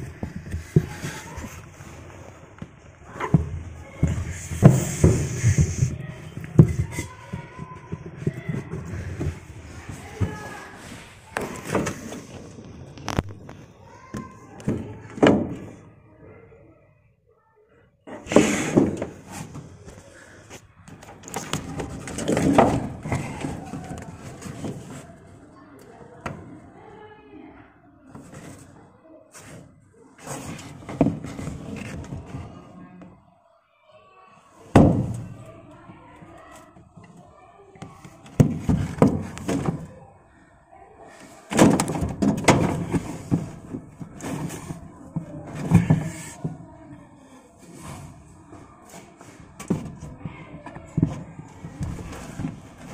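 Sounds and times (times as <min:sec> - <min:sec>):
hard plastic knocking and scraping: 0:00.0 - 0:15.8, 0:18.1 - 0:25.3, 0:30.2 - 0:32.6, 0:37.8 - 0:40.0, 0:41.5 - 0:46.7, 0:48.8 - 0:52.9.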